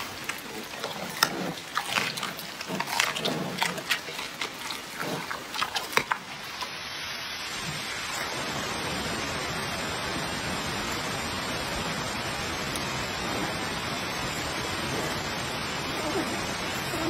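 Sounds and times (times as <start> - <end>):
pandas chewing carrots: 0.0 - 6.9
steady hiss: 0.0 - 17.0.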